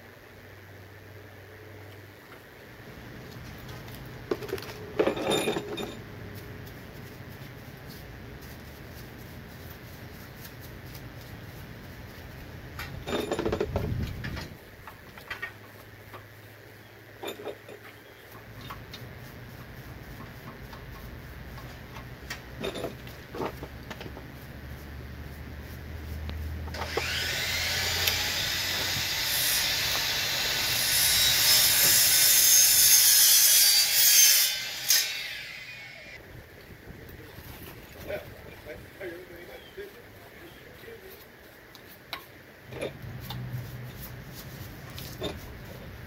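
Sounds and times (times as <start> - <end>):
metal tools clinking: 4.7 - 6.2, 12.8 - 14.4, 17.2 - 18.9, 22.6 - 23.6.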